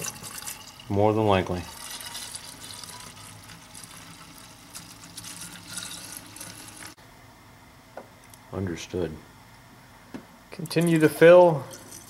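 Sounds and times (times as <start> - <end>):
liquid pouring into tank: 0.0 - 7.0.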